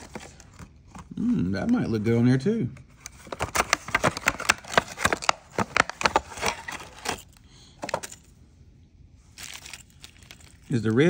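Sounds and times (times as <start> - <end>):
plastic packaging crinkling: 9.4 - 11.0.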